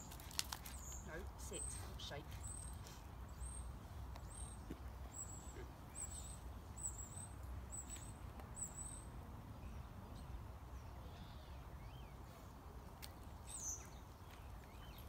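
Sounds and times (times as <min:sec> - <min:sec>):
small bird chirping: 0:00.0 - 0:12.2.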